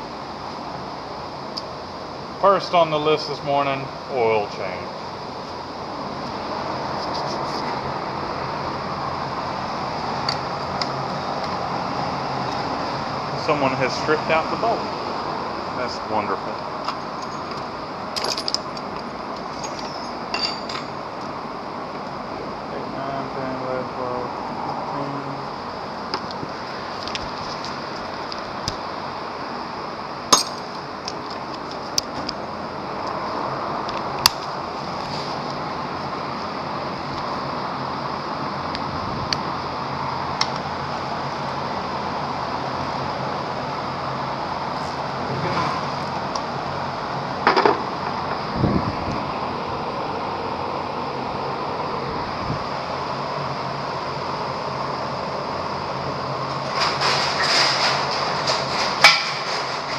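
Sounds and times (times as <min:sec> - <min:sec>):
steady background hum: 0:00.0 - 0:59.9
hand tools clinking on metal: 0:18.2 - 0:18.9, 0:19.5 - 0:20.9, 0:30.3 - 0:30.8.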